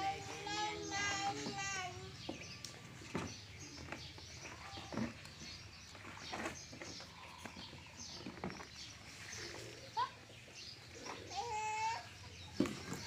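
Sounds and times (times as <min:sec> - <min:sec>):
small birds chirping: 0:00.0 - 0:13.0
soft knocks and rustles: 0:01.4 - 0:09.0.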